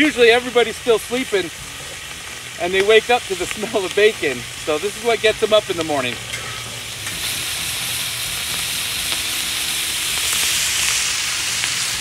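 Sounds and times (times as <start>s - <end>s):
bacon sizzling in a wok: 0.0s - 12.0s.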